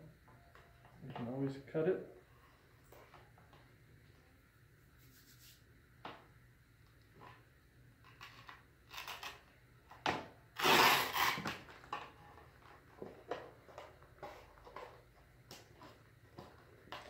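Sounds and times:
hands rubbing on plastic: 5.0 - 5.6.

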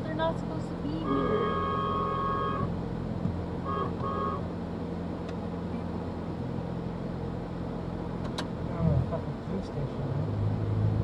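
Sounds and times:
car engine and road hum: 0.0 - 11.0
car horn beeps: 0.9 - 2.7, 3.6 - 4.5.

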